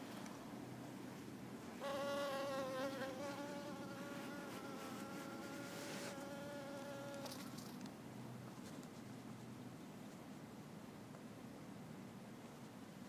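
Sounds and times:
honeybee buzzing: 1.8s - 7.3s.

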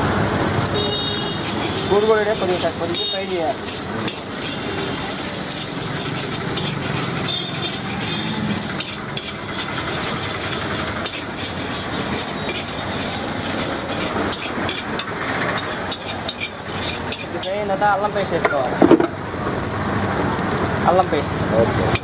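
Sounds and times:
food sizzling in a wok: 0.0s - 22.0s
metal spatula scraping a pan: 1.2s - 17.8s.

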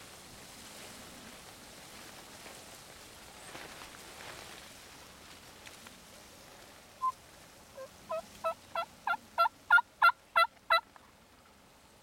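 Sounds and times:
wild turkey yelping: 7.8s - 10.8s.

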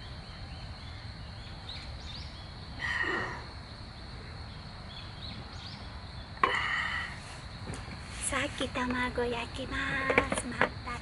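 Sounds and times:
faint bird chirps: 0.0s - 7.4s
high insect drone: 0.0s - 11.0s.

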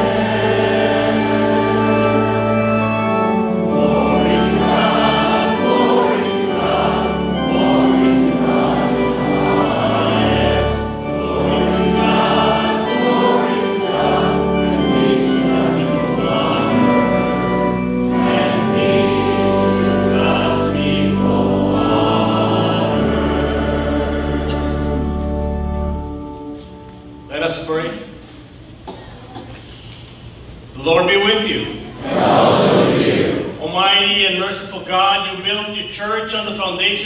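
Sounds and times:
congregation singing a hymn: 0.0s - 27.6s, 31.1s - 37.0s
instrumental accompaniment: 0.0s - 27.7s.

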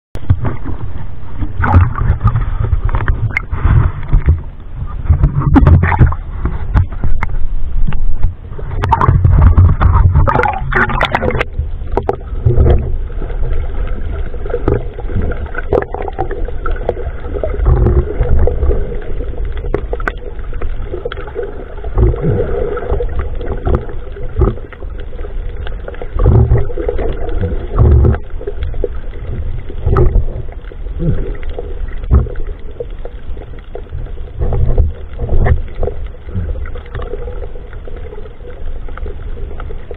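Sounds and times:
muffled underwater rumble: 0.2s - 39.9s
water sloshing and splashing: 0.2s - 39.9s
dull knocks and thumps: 1.5s - 7.3s, 17.6s - 18.4s, 27.7s - 28.2s, 32.0s - 32.4s.

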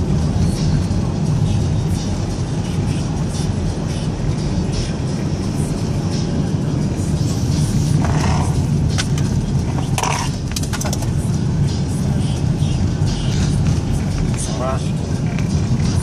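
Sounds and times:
car engine and tyres rumble: 0.0s - 16.0s.

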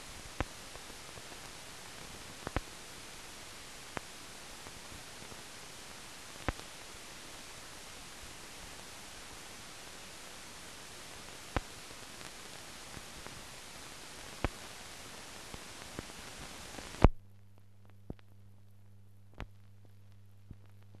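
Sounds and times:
faint low hum: 0.0s - 21.0s
film soundtrack hiss: 0.0s - 21.0s
film clicks and pops: 2.4s - 2.8s, 6.4s - 6.7s, 14.2s - 14.7s.

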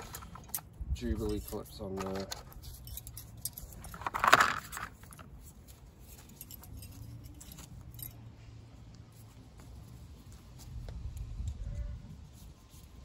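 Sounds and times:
metallic clinks of hose clips: 0.0s - 4.0s, 6.0s - 8.3s.

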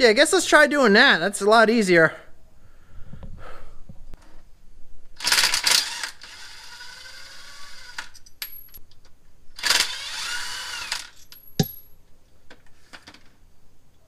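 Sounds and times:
cordless drill running: 5.2s - 8.1s, 9.6s - 11.2s
sharp metallic clank: 11.4s - 11.9s.

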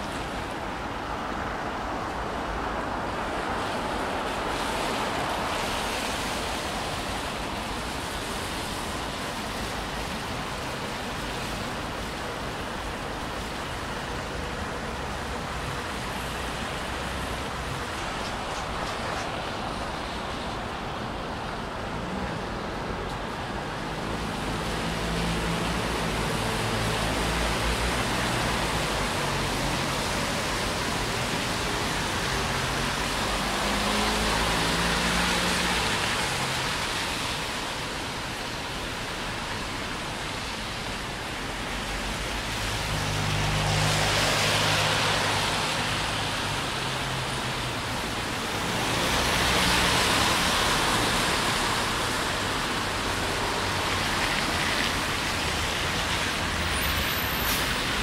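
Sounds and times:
cars passing on wet road: 0.0s - 58.0s
rain hissing: 13.7s - 58.0s.

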